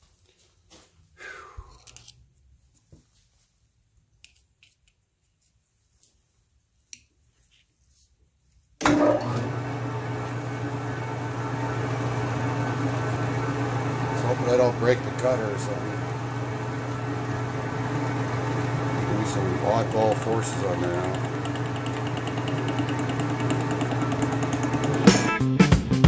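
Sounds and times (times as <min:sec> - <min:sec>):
metal lathe running: 0:08.8 - 0:25.3.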